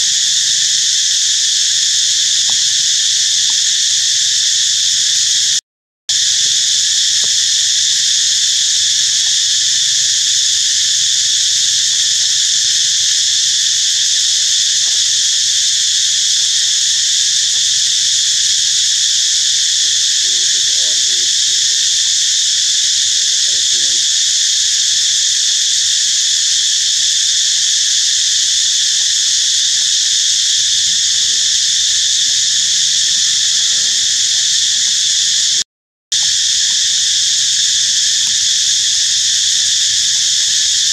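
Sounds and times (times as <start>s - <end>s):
insect chorus drone: 0.0s - 35.6s, 36.2s - 40.9s.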